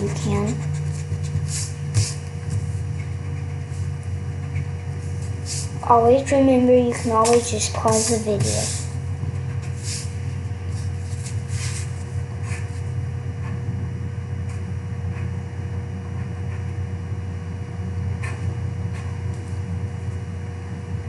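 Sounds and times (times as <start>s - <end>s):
pencil scratching on paper: 0.0s - 5.8s, 6.9s - 13.6s
low hum: 0.0s - 21.0s.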